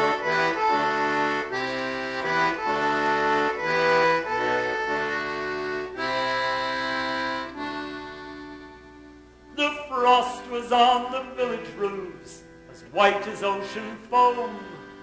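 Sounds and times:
button accordion chords: 0.0s - 15.0s.

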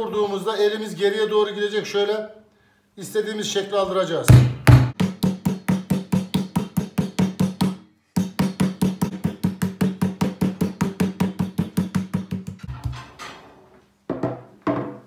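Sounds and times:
meat pounder beating meat: 4.3s - 12.7s.

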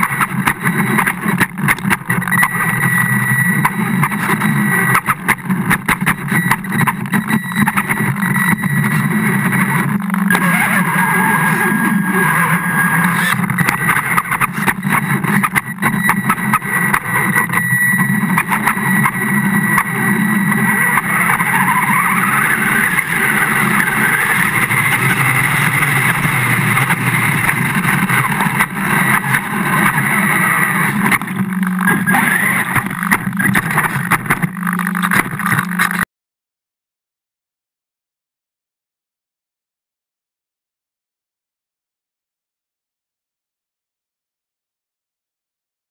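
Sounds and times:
model boat motor running: 10.2s - 36.0s.

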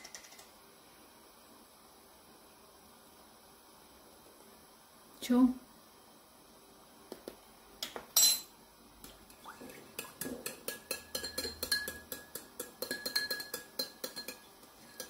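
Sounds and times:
fork clinking in ceramic bowl: 10.0s - 15.0s.

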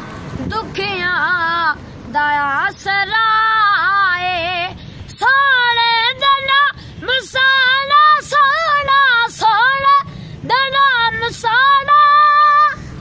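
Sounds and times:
boy singing unaccompanied: 0.4s - 13.0s.

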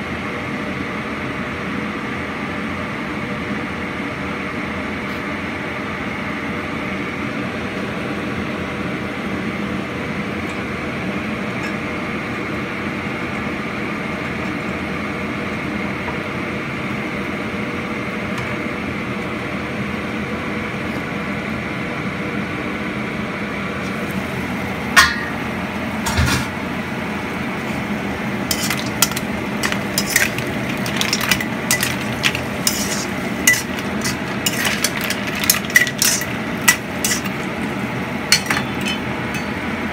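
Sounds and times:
metal lid clanks: 25.0s - 25.4s, 28.5s - 37.5s, 38.3s - 39.6s
shells clinking against wok: 28.5s - 37.5s, 38.3s - 39.6s.

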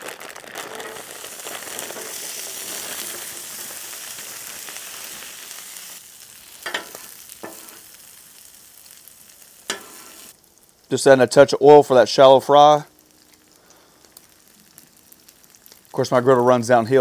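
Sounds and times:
potatoes sizzling on a griddle: 0.0s - 17.0s
metal spatula clicking on griddle: 6.6s - 7.8s, 9.7s - 10.1s.

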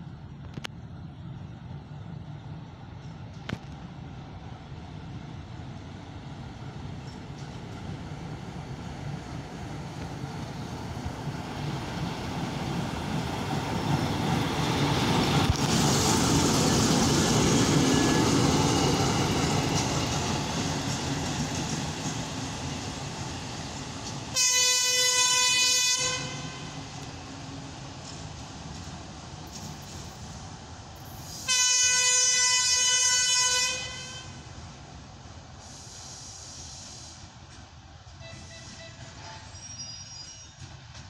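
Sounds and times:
diesel locomotive engine and wheels: 0.0s - 41.0s
locomotive horn blast: 24.4s - 26.8s, 31.5s - 34.4s, 38.2s - 39.6s.

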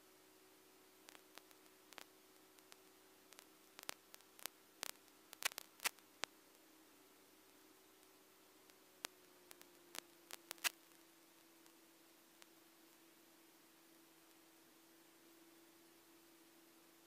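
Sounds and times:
sharp crackling clicks: 1.1s - 6.4s, 8.0s - 11.0s.

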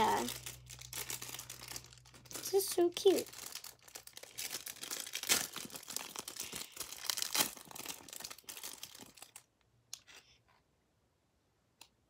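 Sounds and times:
plastic wrapper crinkling and tearing: 0.0s - 9.5s.

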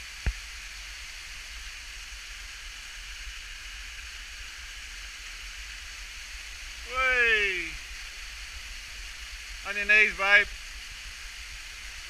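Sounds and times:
waterfall rushing: 2.4s - 12.0s.

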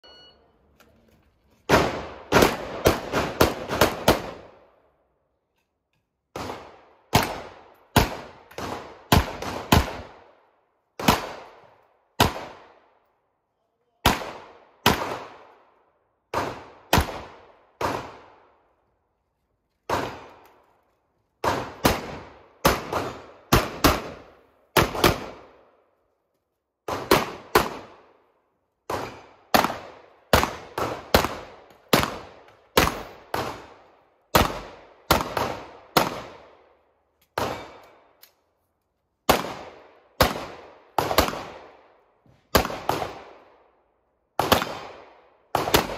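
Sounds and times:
pistol shots with echo: 1.7s - 4.6s, 14.0s - 15.6s, 16.2s - 18.6s, 21.4s - 25.6s, 28.9s - 36.7s, 37.4s - 38.2s, 39.3s - 43.6s, 44.4s - 45.9s.

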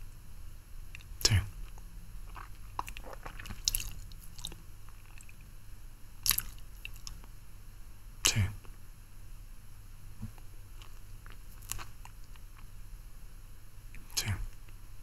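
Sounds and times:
wet lip smacks and tongue clicks: 0.9s - 5.5s, 6.2s - 7.3s, 10.8s - 12.7s.

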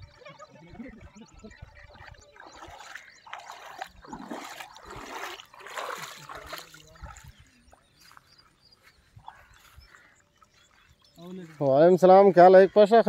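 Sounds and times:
wading through shallow water: 0.0s - 13.0s.

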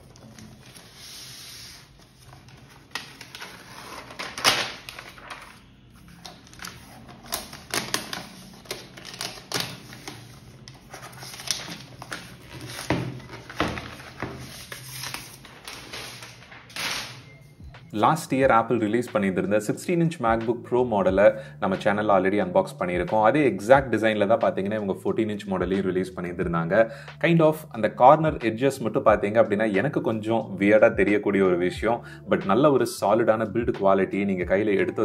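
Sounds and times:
plastic wrap rustling and crackling: 0.0s - 17.2s.

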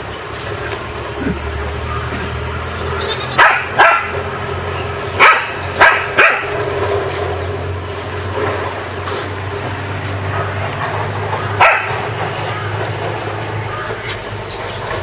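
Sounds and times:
dog barking: 3.4s - 4.2s, 5.2s - 6.6s, 11.6s - 12.0s.

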